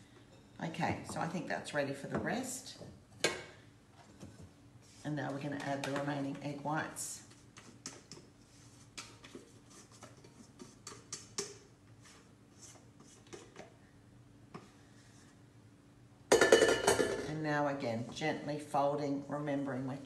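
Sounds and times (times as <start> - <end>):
spatula scraping a metal bowl: 7.6 - 13.6.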